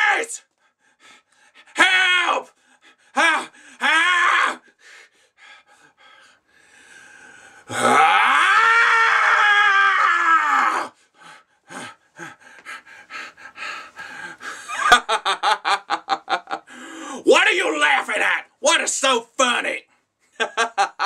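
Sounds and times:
short breathy sounds: 0:16.7 - 0:17.3.

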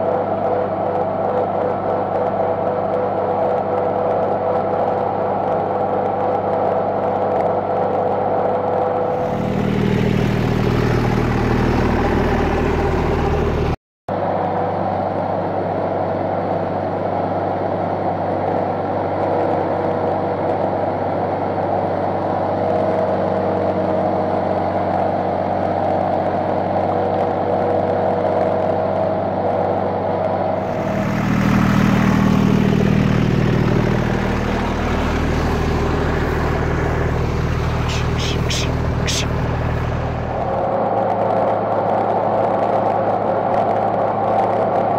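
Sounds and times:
tractor engine running: 0:09.1 - 0:13.8, 0:30.6 - 0:40.9.

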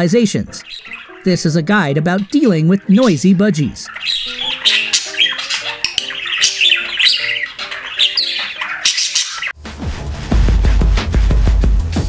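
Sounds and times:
light background music: 0:00.0 - 0:12.0
budgerigar chattering: 0:00.5 - 0:09.6
bass-heavy music: 0:09.6 - 0:12.0.

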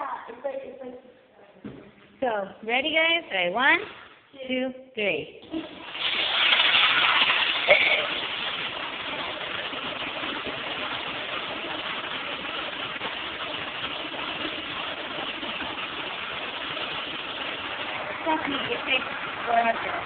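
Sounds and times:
toilet flushing: 0:05.4 - 0:20.0.

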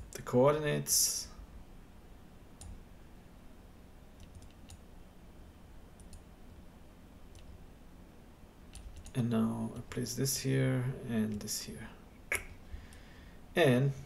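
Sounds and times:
faint low hum: 0:00.0 - 0:14.0
computer mouse clicks: 0:04.2 - 0:04.8, 0:06.0 - 0:06.3, 0:07.3 - 0:07.6, 0:08.7 - 0:09.2.

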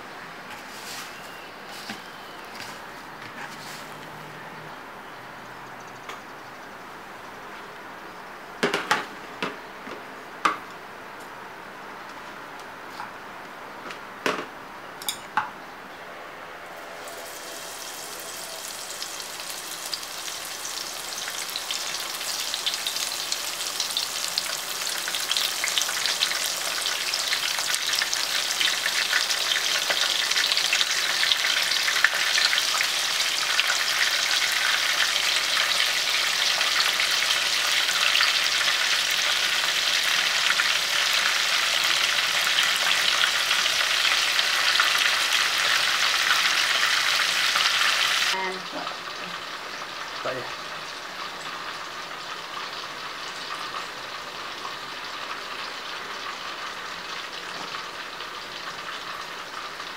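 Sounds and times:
food deep-frying in oil: 0:16.8 - 0:59.9.

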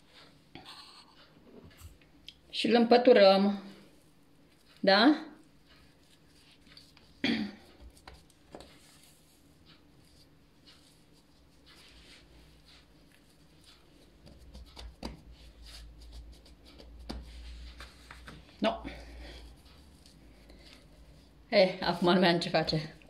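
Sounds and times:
hands rubbing and pressing dough: 0:03.7 - 0:23.0.

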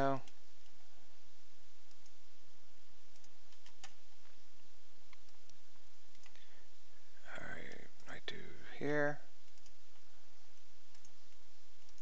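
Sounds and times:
background hiss and low hum: 0:00.0 - 0:12.0
computer mouse clicks: 0:01.9 - 0:02.2, 0:03.1 - 0:04.0, 0:05.1 - 0:06.5, 0:09.4 - 0:10.0, 0:10.6 - 0:12.0.

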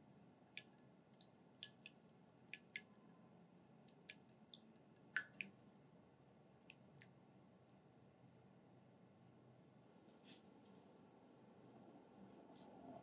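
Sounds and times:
soft wet squishes: 0:00.0 - 0:05.9.

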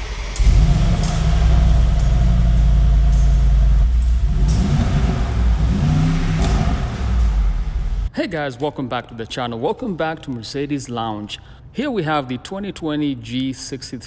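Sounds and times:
car engine idling and revving: 0:00.0 - 0:08.1.

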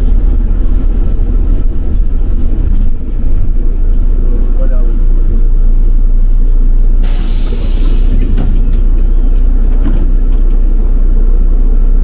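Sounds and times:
bus engine and road rumble: 0:00.0 - 0:12.0
compressed air hiss: 0:07.0 - 0:08.2.

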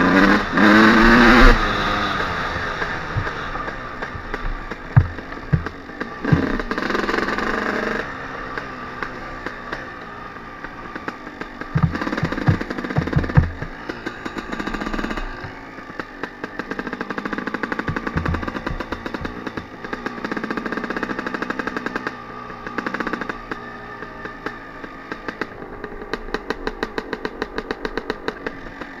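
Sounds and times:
two-stroke dirt bike engine: 0:00.0 - 0:29.0
low thumps over rough ground: 0:00.7 - 0:08.2, 0:10.6 - 0:21.0.

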